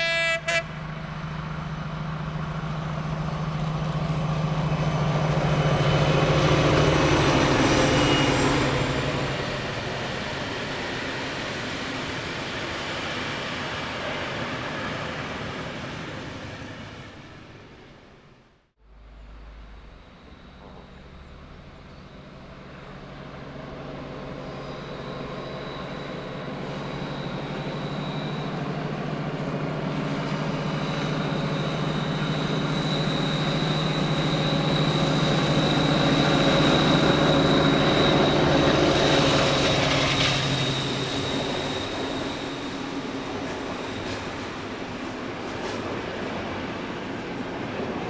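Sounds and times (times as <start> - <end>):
diesel locomotive engine drone: 0.0 - 48.0
coaches rolling on rails: 19.0 - 48.0.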